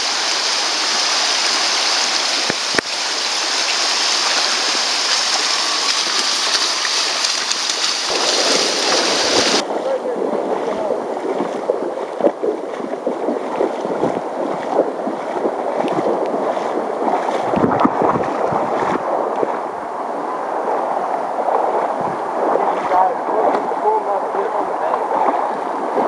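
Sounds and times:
river rushing over rocks: 0.0 - 11.7
water splashing around legs: 0.0 - 26.0.

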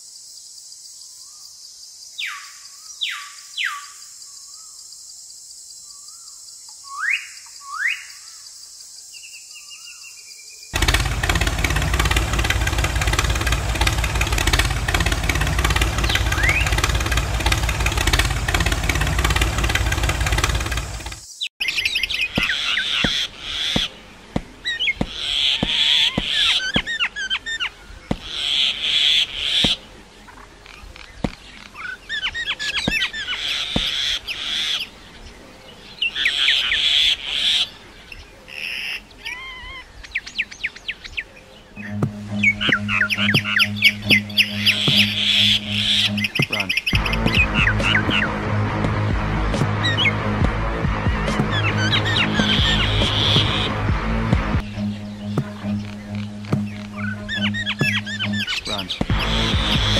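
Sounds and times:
small birds chirping: 0.2 - 48.4, 50.8 - 53.8, 54.4 - 59.9
loud dense rumbling noise: 10.8 - 21.2
sharp clicks: 10.8 - 21.3.

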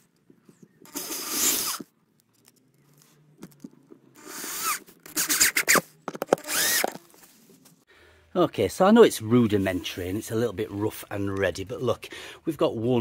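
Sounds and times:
cordless drill driving screws: 0.8 - 1.9, 4.2 - 7.0.

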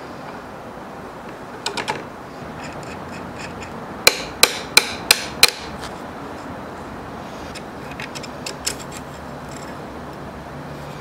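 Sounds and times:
small steel parts clinking: 7.9 - 9.8.

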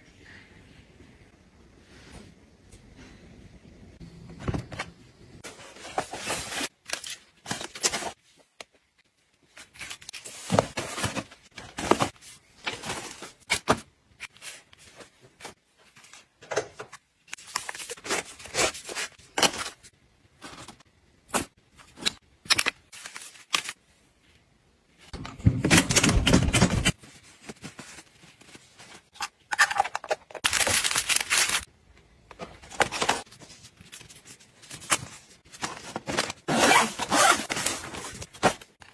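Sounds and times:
plastic and foil packets rustling: 9.5 - 13.7, 26.9 - 31.7.

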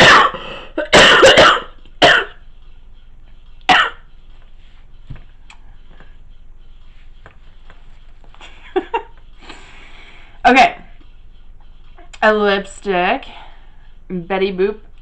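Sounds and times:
woman coughing: 0.0 - 2.4, 3.7 - 4.0.

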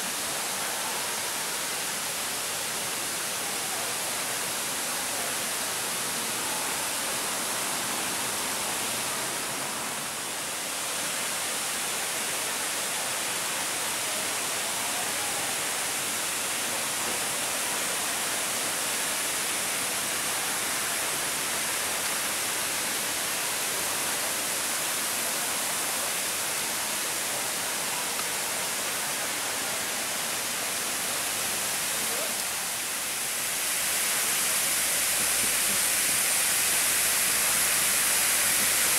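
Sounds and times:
fountain spray hissing: 0.0 - 38.9.

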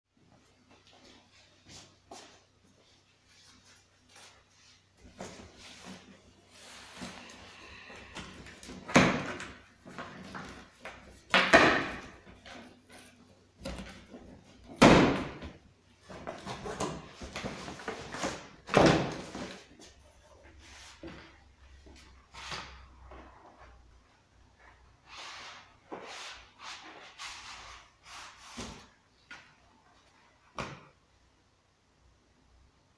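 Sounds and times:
cardboard flaps and packing rustling: 8.0 - 20.0.

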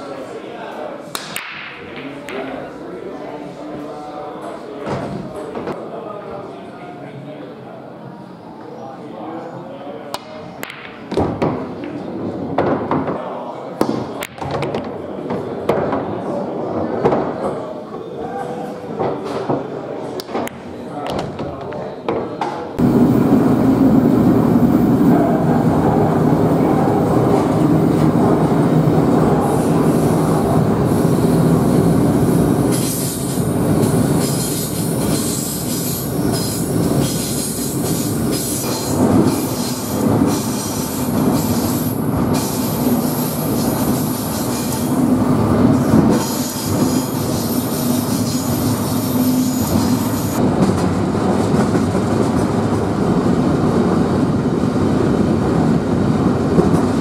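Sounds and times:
train wheels rumbling on rail: 22.8 - 57.0.

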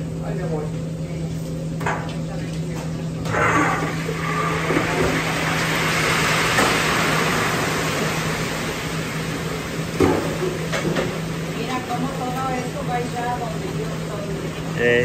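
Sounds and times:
meat sizzling in hot lard: 4.0 - 12.0.

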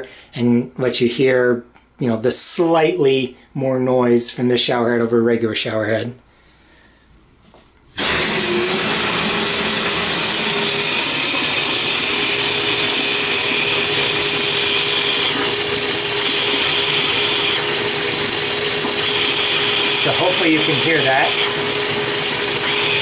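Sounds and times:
water rushing from tub spout: 8.0 - 23.0.

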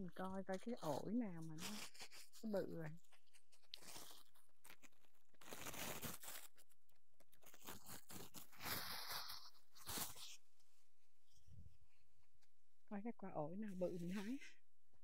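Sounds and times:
leaves and twigs rustling: 0.5 - 6.7.

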